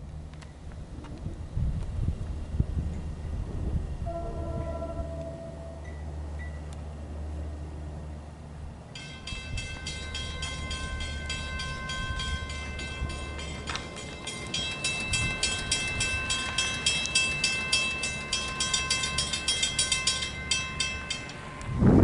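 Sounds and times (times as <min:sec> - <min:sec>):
railroad crossing bells ringing: 0:04.0 - 0:06.8, 0:07.9 - 0:22.0.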